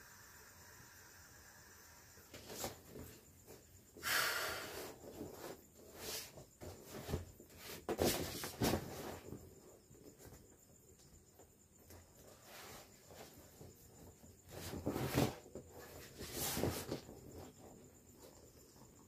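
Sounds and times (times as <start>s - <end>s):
air hissing out of inflatable: 0.0s - 2.8s, 4.0s - 5.1s
vinyl rubbing and crinkling: 12.3s - 18.3s.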